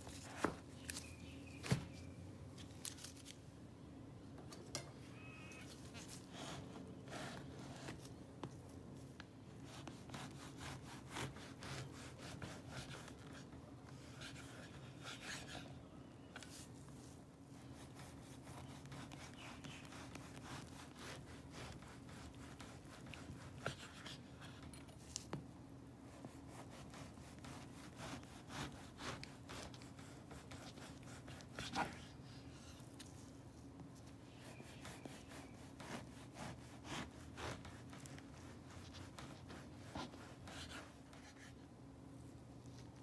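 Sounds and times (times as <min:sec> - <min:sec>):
knife sawing through crusty bread: 0:09.9 - 0:13.1, 0:17.8 - 0:24.0, 0:26.5 - 0:31.8, 0:34.4 - 0:40.9
blade rasping against crust: 0:18.0 - 0:24.0, 0:26.5 - 0:31.8.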